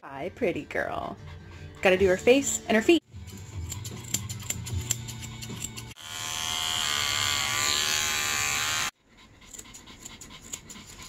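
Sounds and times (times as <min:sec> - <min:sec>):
scissors snipping fur: 0:03.2 - 0:06.0, 0:09.5 - 0:11.0
electric hair clippers buzzing: 0:06.0 - 0:08.9.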